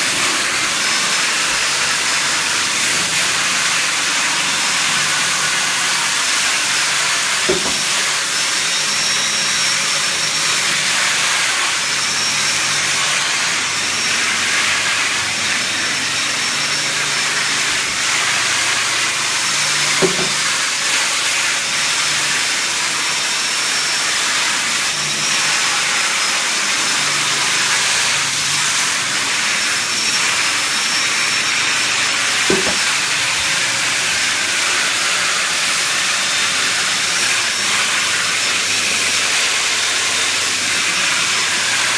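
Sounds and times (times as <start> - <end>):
knock: 7.5 - 7.9, 20.0 - 20.4, 32.5 - 32.8.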